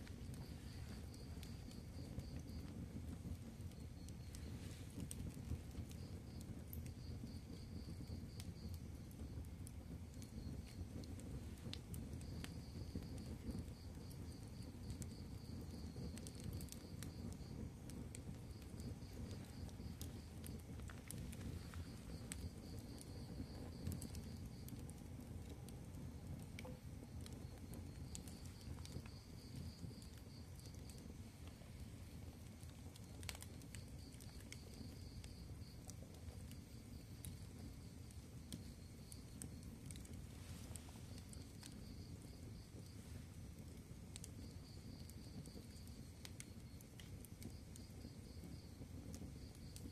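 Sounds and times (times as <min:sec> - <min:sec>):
fire crackling and popping: 0:00.0 - 0:49.9.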